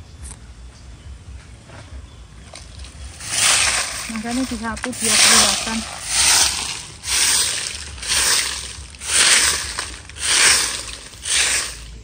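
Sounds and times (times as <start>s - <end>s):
broom sweeping dry leaves: 2.5s - 12.0s.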